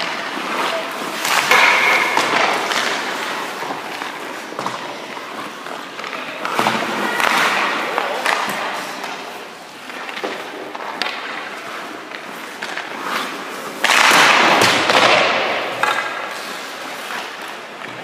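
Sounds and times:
skates scraping on ice: 0:00.0 - 0:18.0
loud scrape of sliding on ice: 0:11.4 - 0:14.5.

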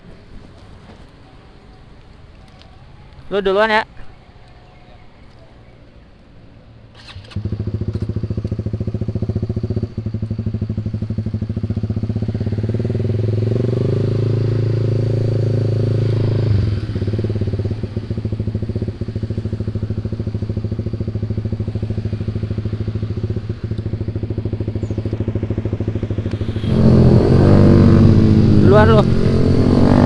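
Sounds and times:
motorcycle engine running: 0:07.0 - 0:30.0.

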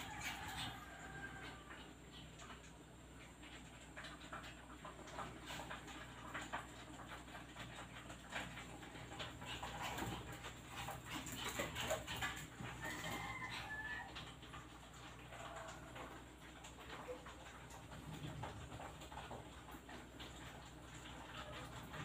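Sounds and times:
puppy claws scrabbling on tiles: 0:04.0 - 0:15.8.

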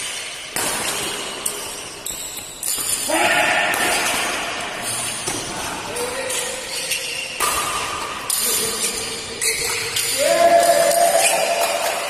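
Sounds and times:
shuttlecock hits: 0:06.3 - 0:09.0.

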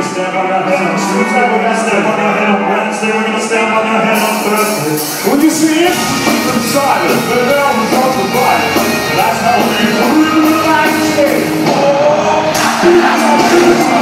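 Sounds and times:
live rock band playing loud: 0:02.2 - 0:14.0
person singing: 0:03.9 - 0:14.0
drums with cymbals: 0:04.2 - 0:11.9.

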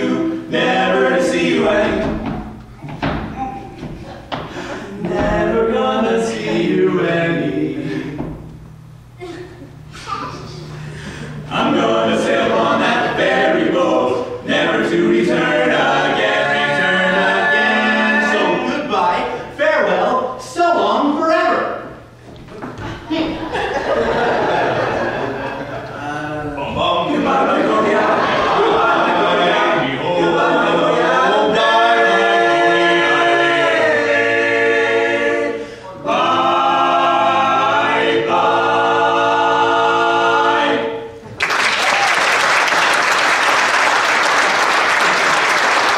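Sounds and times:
male quartet singing a cappella: 0:00.0 - 0:02.6, 0:04.2 - 0:08.6, 0:10.8 - 0:21.1, 0:25.6 - 0:41.2.

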